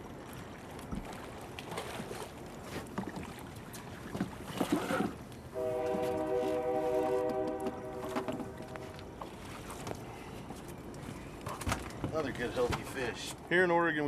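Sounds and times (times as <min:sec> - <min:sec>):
water splashes: 0:00.0 - 0:14.0
wind: 0:00.0 - 0:14.0
river flowing: 0:05.5 - 0:11.5.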